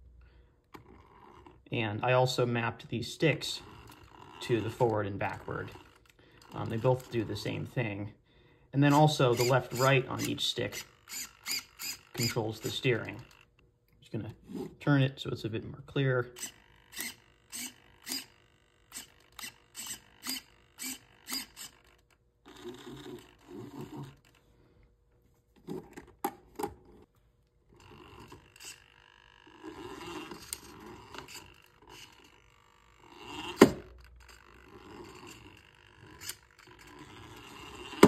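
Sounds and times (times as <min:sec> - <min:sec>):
small motor and gears whirring: 0:00.7 - 0:01.7, 0:02.6 - 0:07.7, 0:08.8 - 0:13.6, 0:16.3 - 0:24.6, 0:27.7 - 0:38.0
steering servo buzzing: 0:08.9 - 0:13.6, 0:16.3 - 0:24.4, 0:27.7 - 0:38.0.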